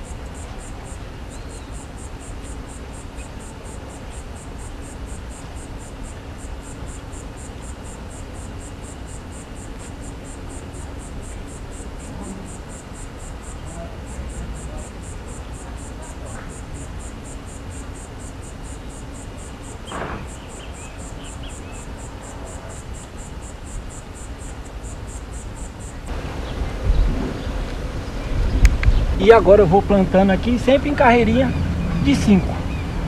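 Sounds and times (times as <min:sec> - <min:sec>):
insect chirping: 0:00.0 - 0:33.0
wind rumble on microphone: 0:26.1 - 0:33.0.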